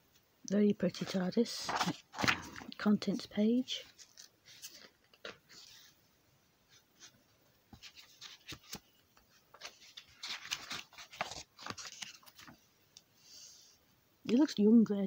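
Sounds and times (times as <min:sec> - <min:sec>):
paper pages rustling: 0:01.0 - 0:02.8, 0:03.8 - 0:06.0, 0:06.7 - 0:12.7.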